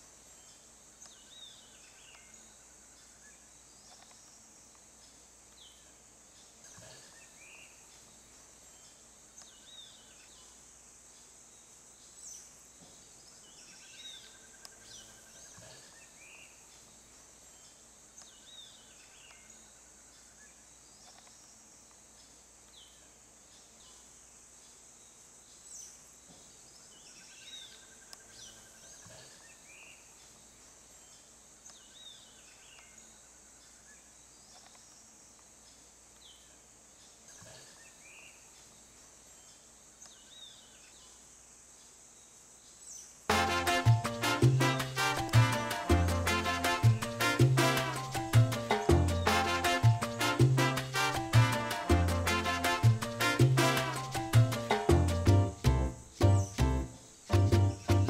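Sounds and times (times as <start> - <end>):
high insect hum: 0.0 - 58.0
birds chirping: 43.4 - 58.0.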